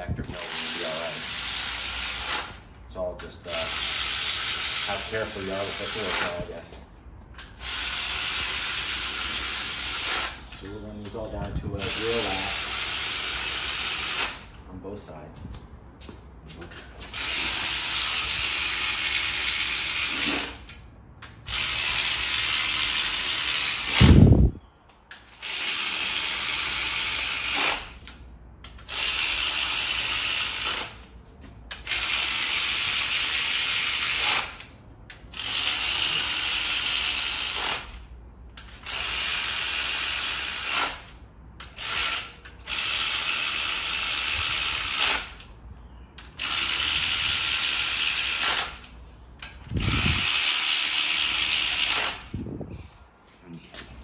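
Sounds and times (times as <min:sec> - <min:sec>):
power ratchet running: 0:00.2 - 0:02.6, 0:03.5 - 0:06.6, 0:07.4 - 0:10.6, 0:11.8 - 0:14.6, 0:17.0 - 0:24.5, 0:25.2 - 0:31.1, 0:31.7 - 0:45.5, 0:46.2 - 0:49.0, 0:49.6 - 0:52.4.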